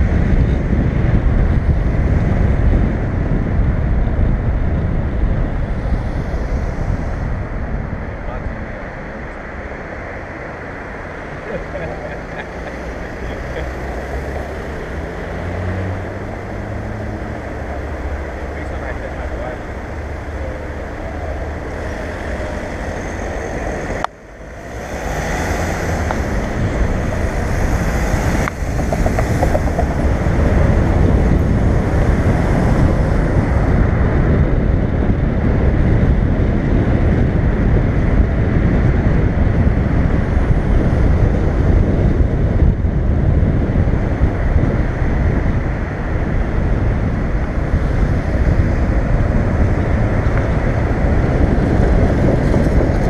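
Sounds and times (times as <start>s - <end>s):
road and traffic noise: 0.0s - 53.0s
wind buffeting camera: 0.0s - 53.0s.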